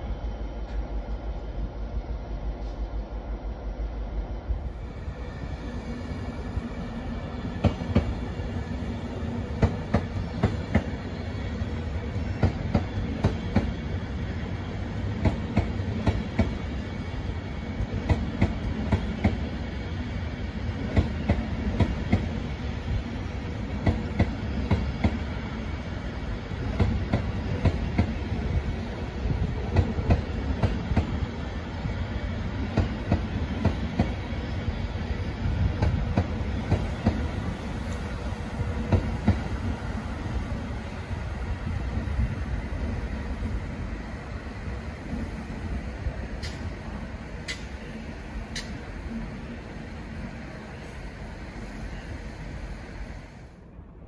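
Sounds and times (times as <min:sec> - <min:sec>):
low train rumble: 0:00.0 - 0:54.0
train wheels clicking over rail joints: 0:15.2 - 0:16.6, 0:46.4 - 0:46.8, 0:47.4 - 0:48.9.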